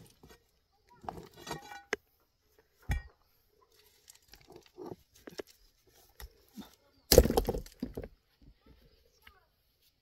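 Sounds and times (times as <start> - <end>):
loose stones clattering: 2.8 - 8.2.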